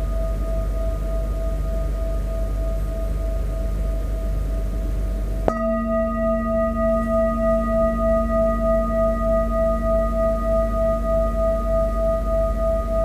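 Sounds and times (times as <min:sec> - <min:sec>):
mallet striking singing bowl: 0:05.4 - 0:11.7
metal singing bowl ringing: 0:05.4 - 0:13.0.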